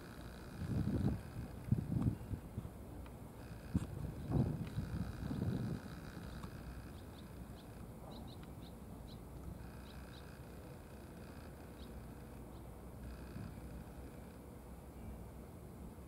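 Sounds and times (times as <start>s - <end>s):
low outdoor rumble: 0.0s - 16.0s
small bird chirps: 6.2s - 10.4s, 11.6s - 13.4s.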